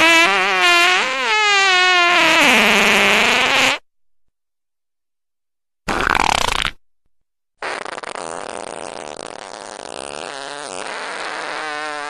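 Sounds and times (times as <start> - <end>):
fart sound effect: 0.0 - 3.8, 5.9 - 6.8, 7.6 - 12.0.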